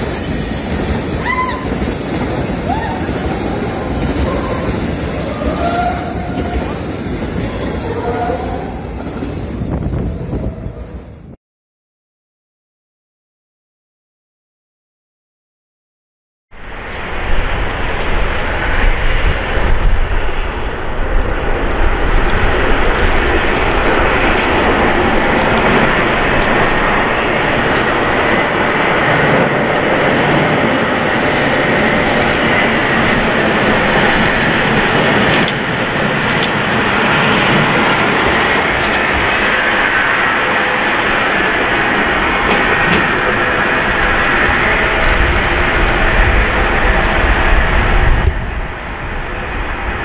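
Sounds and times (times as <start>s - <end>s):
diesel locomotive engine running: 16.6s - 50.0s.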